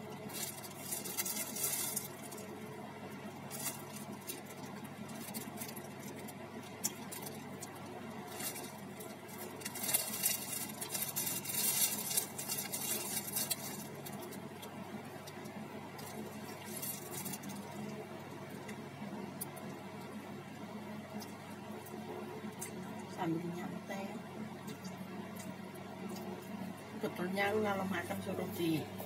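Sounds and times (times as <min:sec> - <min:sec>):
plastic bag and paper crinkling: 0:00.0 - 0:18.8.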